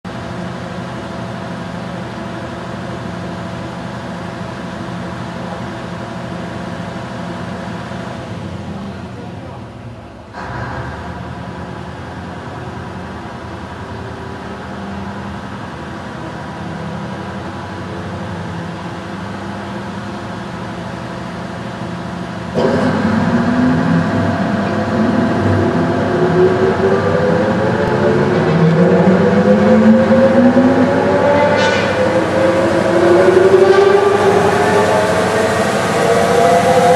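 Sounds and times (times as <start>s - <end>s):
centrifuge machine hum: 18.7s - 36.9s
whine climbing in pitch: 22.6s - 36.9s.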